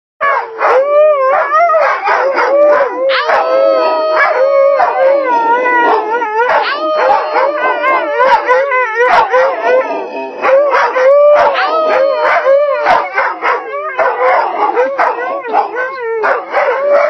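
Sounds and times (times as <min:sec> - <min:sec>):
dogs howling: 0:00.2 - 0:17.0
dog yipping: 0:02.1 - 0:05.0, 0:05.8 - 0:09.6, 0:10.4 - 0:17.0.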